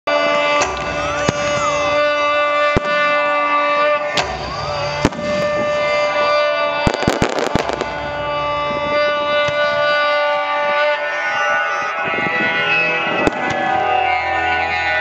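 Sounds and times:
loud music with held notes: 0:00.1 - 0:15.0
fireworks bangs: 0:00.6 - 0:10.0.

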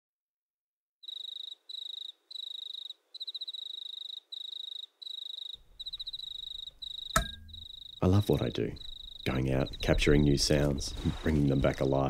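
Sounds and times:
insect chirping in trills: 0:01.0 - 0:09.9.

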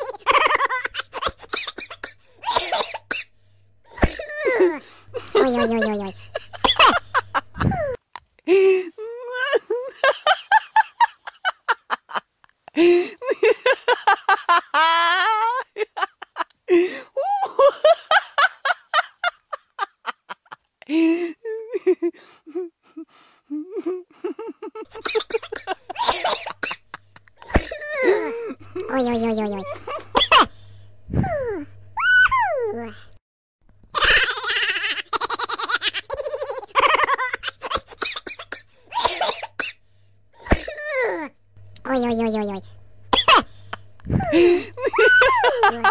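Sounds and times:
person giggling: 0:00.0 - 0:01.8, 0:03.9 - 0:30.2, 0:34.0 - 0:39.3, 0:43.2 - 0:45.9
high-pitched laughter: 0:00.0 - 0:02.0, 0:04.0 - 0:08.0, 0:13.2 - 0:20.6, 0:33.9 - 0:38.5, 0:44.1 - 0:45.9.

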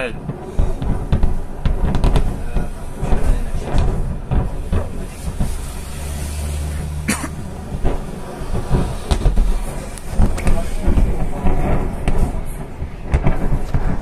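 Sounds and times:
distant explosions booming: 0:00.0 - 0:14.0
low explosion rumble: 0:00.0 - 0:14.0
sharp crack: 0:00.0 - 0:14.0
bus engine hum: 0:04.2 - 0:11.4.

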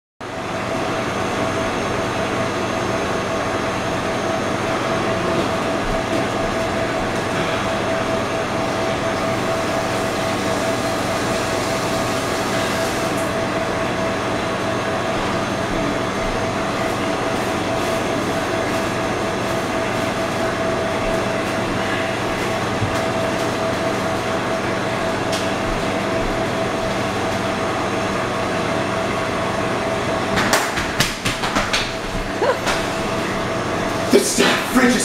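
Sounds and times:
refrigerator compressor humming: 0:00.2 - 0:35.0.

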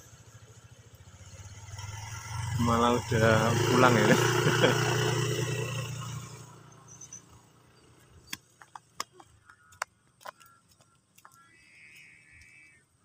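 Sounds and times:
motor scooter engine: 0:00.0 - 0:09.8.

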